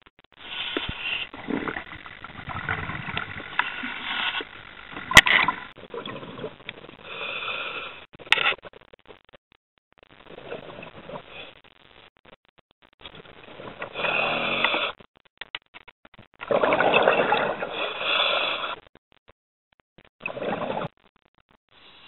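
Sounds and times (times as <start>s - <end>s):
diver breathing through regulator: 0.4s - 8.1s, 13.7s - 15.0s, 16.7s - 18.8s.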